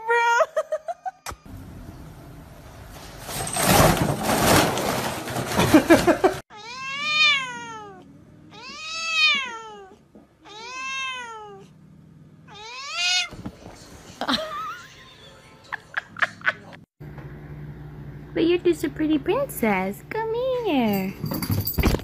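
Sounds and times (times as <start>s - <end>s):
cat meowing loudly: 6.5s - 11.6s, 12.5s - 13.4s.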